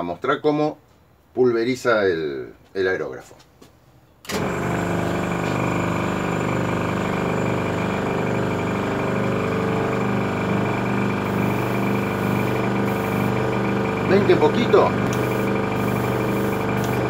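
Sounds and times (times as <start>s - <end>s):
air compressor motor hum: 4.3s - 17.0s
air hissing: 11.2s - 13.8s, 15.0s - 17.0s.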